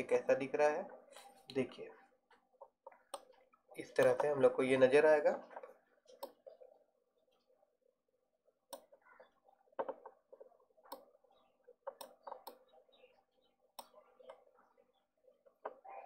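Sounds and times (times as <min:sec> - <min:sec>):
computer mouse clicking: 0:02.6 - 0:04.4, 0:05.5 - 0:06.6, 0:08.7 - 0:13.0, 0:13.7 - 0:14.5.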